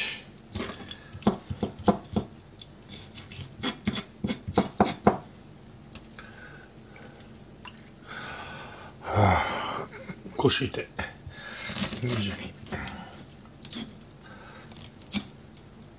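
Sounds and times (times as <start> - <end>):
knife chopping on plastic board: 1.2 - 2.3, 4.2 - 5.2.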